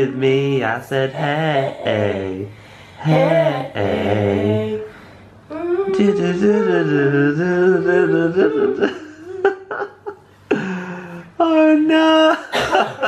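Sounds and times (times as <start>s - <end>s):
person singing a long note: 1.2s - 4.9s, 5.5s - 8.9s.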